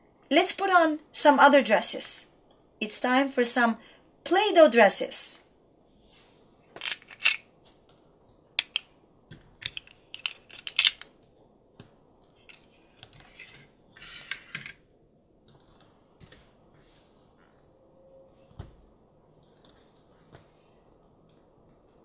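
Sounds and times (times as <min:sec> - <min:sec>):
plastic clicks and scrapes: 0:09.6 - 0:11.1.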